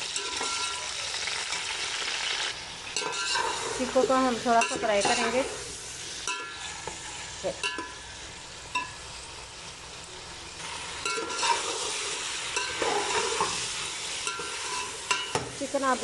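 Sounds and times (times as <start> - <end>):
chicken sizzling in pot: 0.0 - 16.0
metal spoon scraping pot: 3.0 - 3.9.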